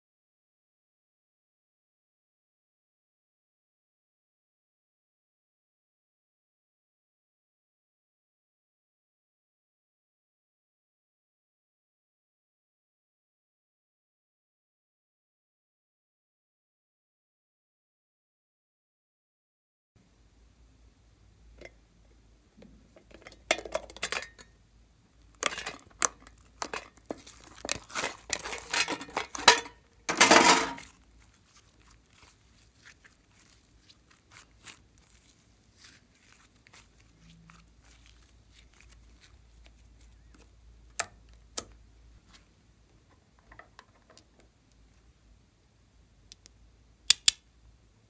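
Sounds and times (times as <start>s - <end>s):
metal tin opening: 23.0s - 24.6s, 25.4s - 30.9s
slime clicking and crackling: 25.2s - 28.7s, 30.8s - 41.8s.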